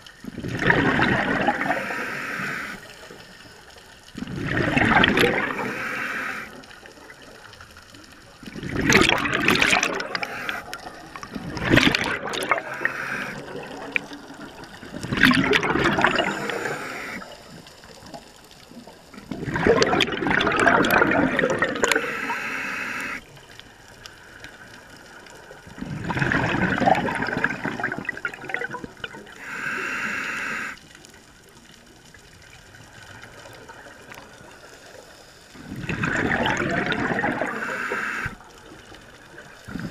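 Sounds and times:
exhaled bubbles bursting underwater: 0:00.2 - 0:02.6, 0:04.1 - 0:07.5, 0:08.4 - 0:18.2, 0:18.8 - 0:22.1, 0:25.6 - 0:29.4, 0:35.6 - 0:39.9.

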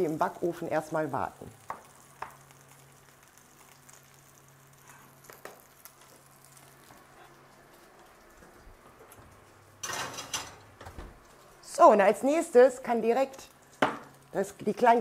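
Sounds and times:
fat sizzling in a frying pan: 0:00.0 - 0:08.5, 0:11.2 - 0:15.0.

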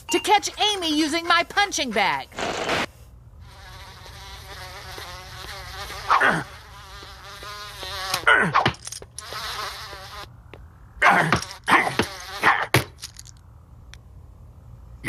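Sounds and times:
cartoon fly buzzing: 0:00.4 - 0:10.4, 0:11.1 - 0:12.7.

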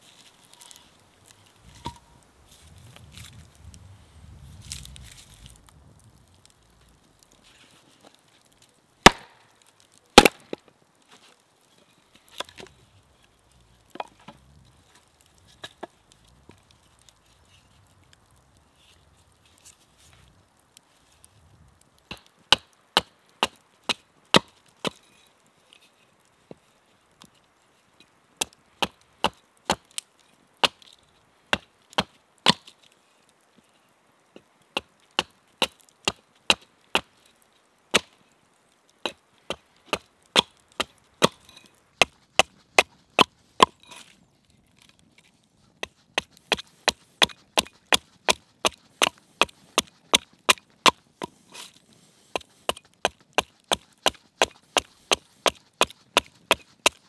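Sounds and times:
axe chopping wood: 0:09.0 - 0:09.3, 0:10.2 - 0:10.6, 0:39.0 - 0:41.4, 0:45.9 - 0:51.0, 0:52.4 - 0:57.0.

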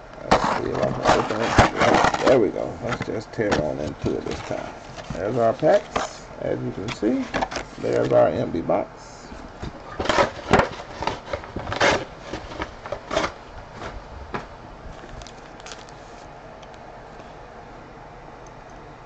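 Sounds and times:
card packs crinkling and rustling: 0:00.3 - 0:08.4, 0:09.6 - 0:16.3.

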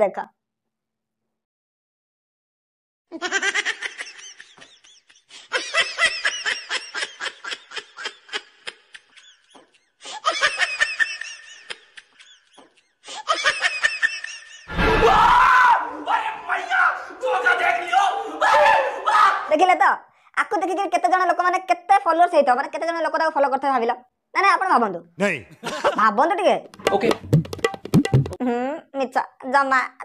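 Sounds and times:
woman laughing maniacally: 0:03.1 - 0:14.7
loud shouting: 0:14.7 - 0:19.6.

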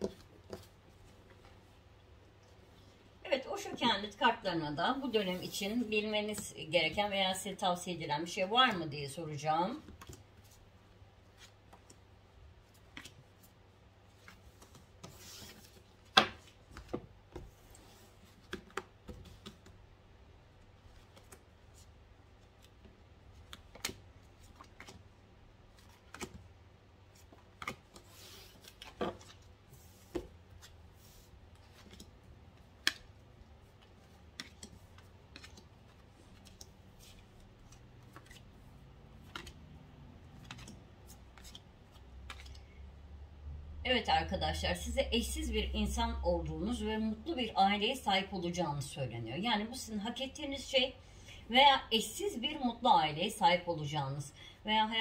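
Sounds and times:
cards sliding and rustling: 0:12.7 - 0:19.7, 0:27.1 - 0:42.6.

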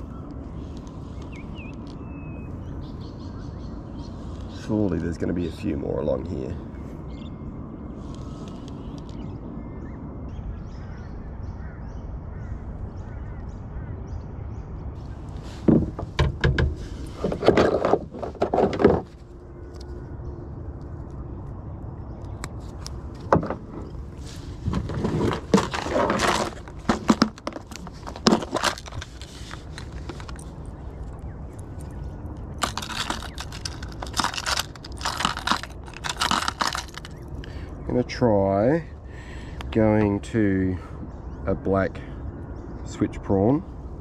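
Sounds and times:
fishing tackle rustling: 0:15.0 - 0:19.3, 0:22.6 - 0:37.5
fishing tackle scraping: 0:15.0 - 0:19.3, 0:22.5 - 0:37.5.

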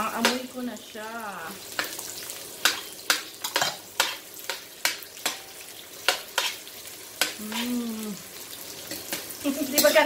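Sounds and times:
vegetables sizzling in oil: 0:00.0 - 0:10.0.

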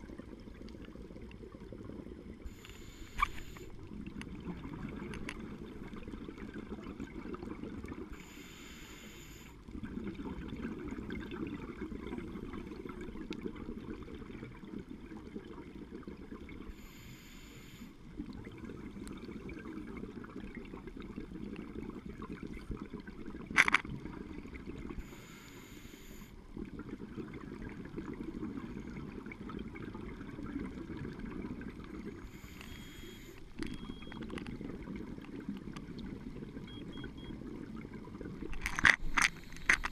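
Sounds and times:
exhaled bubbles underwater: 0:00.0 - 0:08.5, 0:09.3 - 0:17.1, 0:18.0 - 0:25.4, 0:26.1 - 0:39.9
hissing regulator inhalation: 0:08.1 - 0:09.6, 0:25.0 - 0:26.3, 0:32.2 - 0:33.4.

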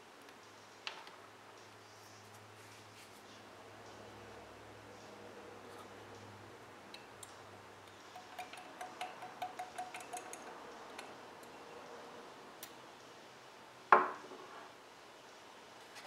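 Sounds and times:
pen nib tapping glass bottle: 0:08.2 - 0:10.4.

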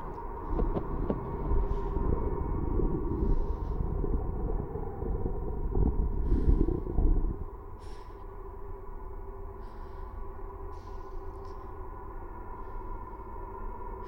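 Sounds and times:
deep loud rumbling: 0:00.0 - 0:08.2
steady droning tone: 0:00.0 - 0:14.0.

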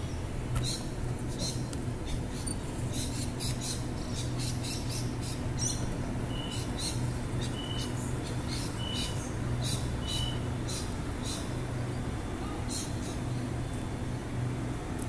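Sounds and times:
small birds chirping: 0:00.0 - 0:11.7, 0:12.4 - 0:13.7
electric train humming: 0:03.8 - 0:15.0.

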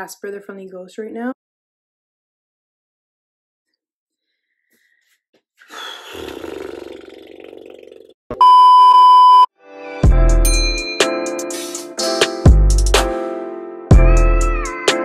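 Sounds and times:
one-pitch test-tone beep: 0:08.4 - 0:09.5.

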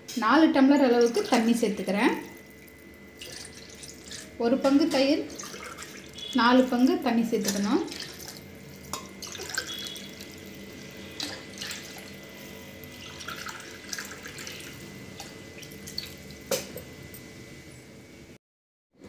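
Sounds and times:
water pouring into steel: 0:07.5 - 0:12.1.

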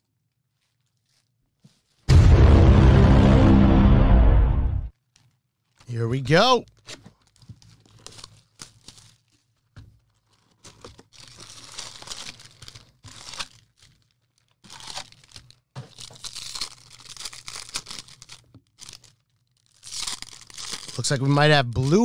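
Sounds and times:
plastic wrapping tearing and crinkling: 0:00.5 - 0:02.0, 0:06.7 - 0:22.0.

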